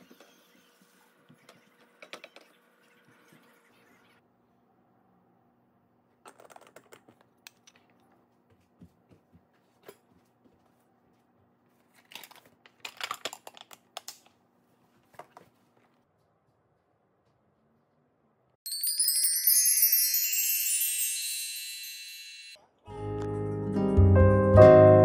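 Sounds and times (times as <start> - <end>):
lunch containers clicking and clattering: 11.9 - 14.4.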